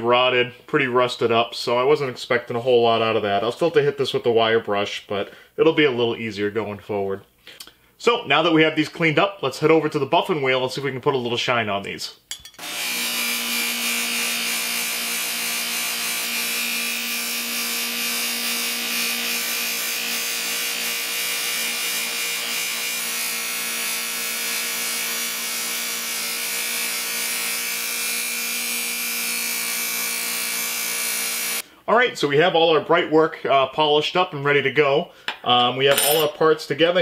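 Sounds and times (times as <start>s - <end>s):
bench buffer motor hum: 12.6s - 31.6s.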